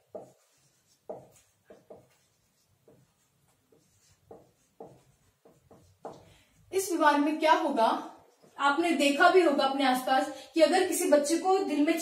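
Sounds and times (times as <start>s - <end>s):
marker writing on whiteboard: 0.0s - 9.1s.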